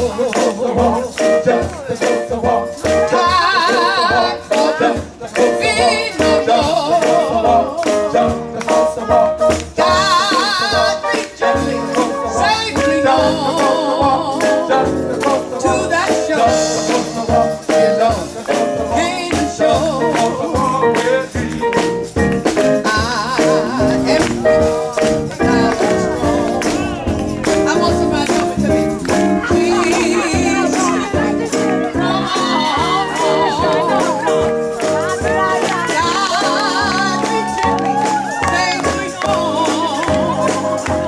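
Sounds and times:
drums: 0.0s - 41.0s
shaken tambourine: 0.0s - 41.0s
woman singing with vibrato: 3.0s - 8.0s, 8.9s - 14.8s, 22.8s - 41.0s
electric bass: 11.6s - 41.0s.

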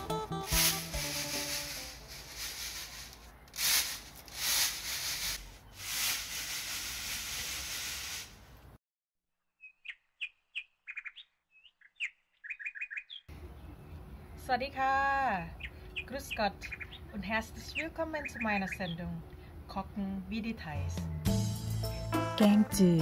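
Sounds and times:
noisy rustling hiss: 0.5s - 8.7s
small birds chirping: 9.6s - 14.8s, 15.4s - 19.2s.

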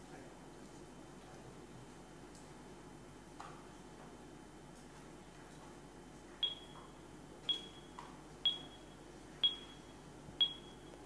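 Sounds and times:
short electronic pings: 6.4s - 6.8s, 7.5s - 10.9s.

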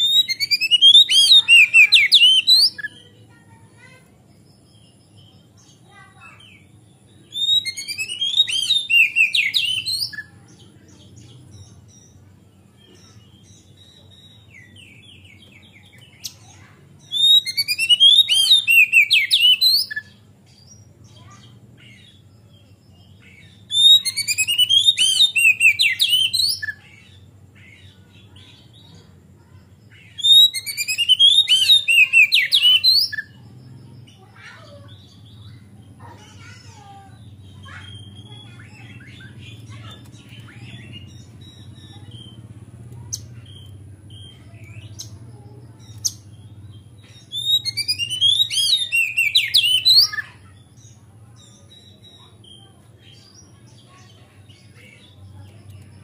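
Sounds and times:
bird singing high sweeping notes: 46.1s - 50.5s.

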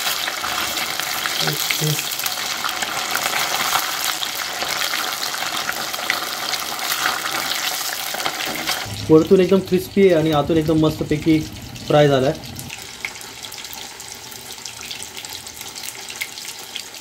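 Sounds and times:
fish deep-frying in hot oil: 0.0s - 17.0s.

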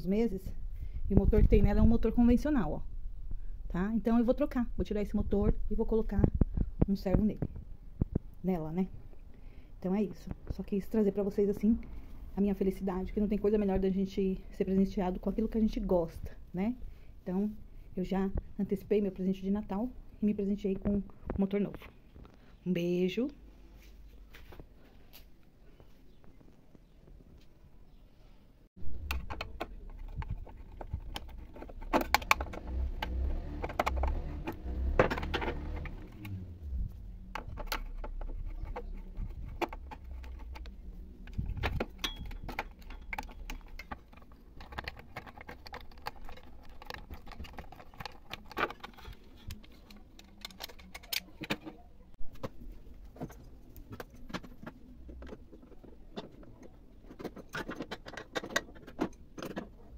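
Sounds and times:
low handling rumble: 28.8s - 43.8s
metal tools clinking and knocking: 41.8s - 48.1s.

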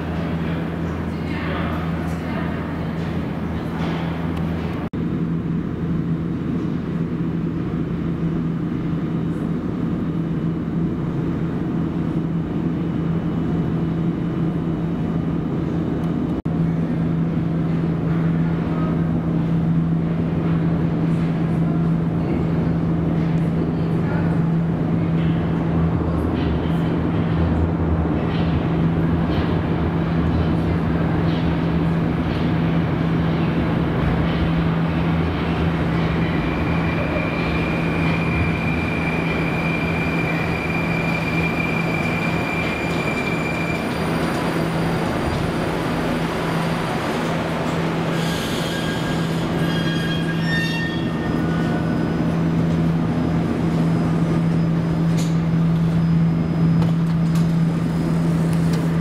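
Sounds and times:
train low hum and running noise: 0.0s - 59.0s
high brake squeal: 36.4s - 45.1s, 48.1s - 52.3s.

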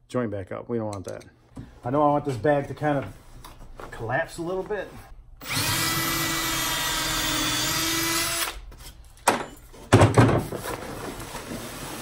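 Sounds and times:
power drill running: 5.4s - 8.6s.

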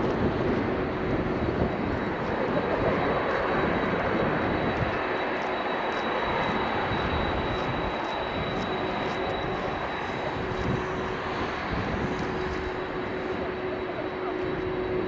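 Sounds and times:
jet engines at takeoff: 0.0s - 15.0s.

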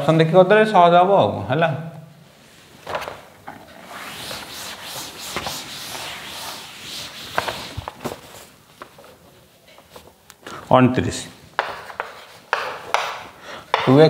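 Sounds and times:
duster scrubbing chalkboard: 3.7s - 8.6s, 11.6s - 14.0s.

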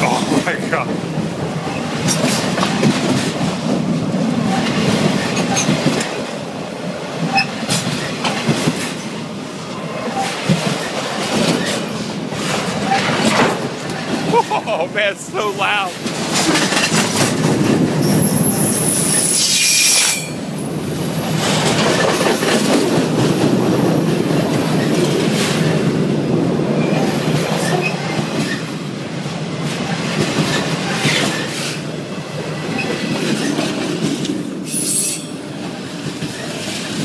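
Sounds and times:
freight train wheels rumbling: 0.0s - 37.0s
high-pitched wheel squeals: 18.1s - 21.0s, 34.7s - 35.3s.

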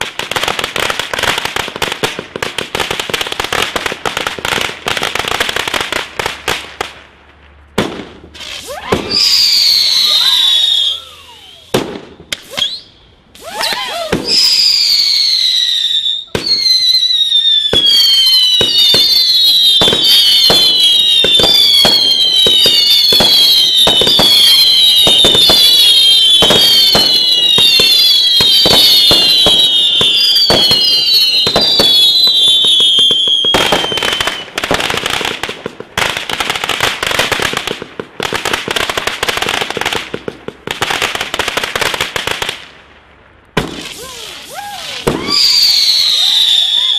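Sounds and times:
rapid firework crackle: 0.0s - 12.8s, 13.4s - 46.9s
firework bangs: 0.0s - 46.9s
firework whistles: 8.3s - 34.7s, 43.7s - 46.9s.

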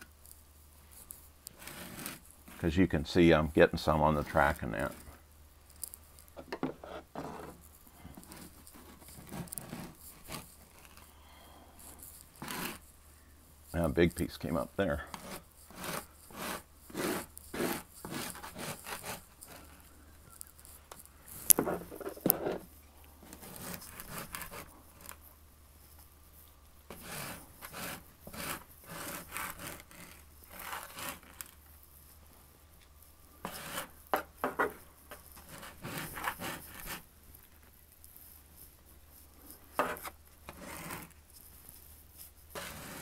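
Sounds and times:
putty knife scraping: 1.0s - 2.6s, 6.6s - 11.0s, 12.0s - 12.8s, 15.1s - 19.8s, 23.3s - 25.2s, 26.9s - 31.6s, 33.4s - 37.0s, 39.8s - 41.2s, 42.6s - 43.0s.

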